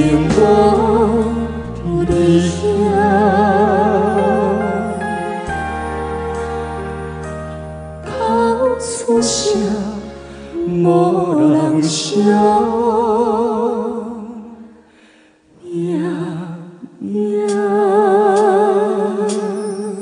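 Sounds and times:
man and woman singing ballad: 0:00.0 - 0:05.5, 0:08.0 - 0:14.7, 0:15.5 - 0:20.0
musical accompaniment: 0:00.0 - 0:14.8.

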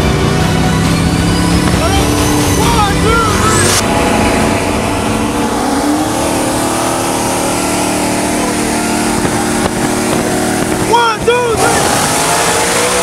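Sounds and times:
car engines at full throttle: 0:00.0 - 0:13.0.

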